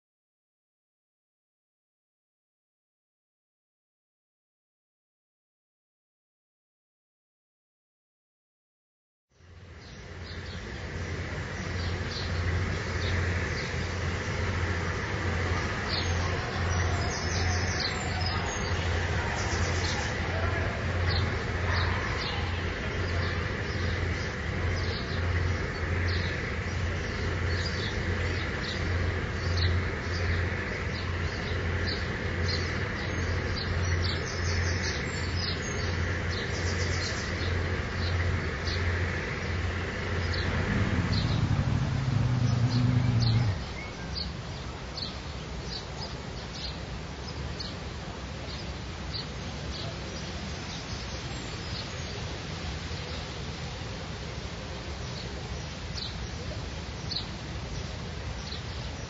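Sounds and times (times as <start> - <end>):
birds chirping: 23.0 - 44.4
motorboat engine humming: 39.0 - 44.2.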